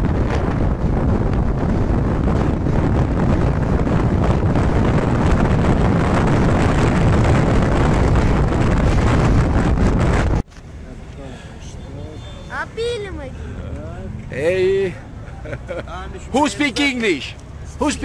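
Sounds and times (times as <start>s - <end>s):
wind rush on microphone: 0.0s - 10.5s.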